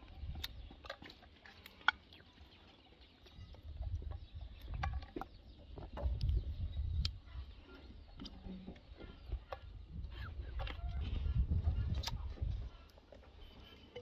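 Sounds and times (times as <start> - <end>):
faint bird calls: 6.8 - 14.0.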